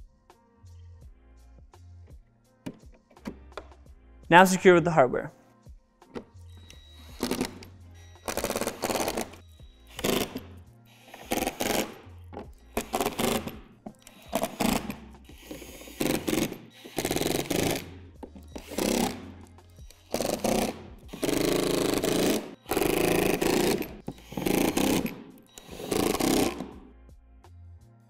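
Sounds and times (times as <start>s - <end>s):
background music: 0.0s - 28.0s
cordless drill driving screws: 6.6s - 12.0s, 12.8s - 26.8s.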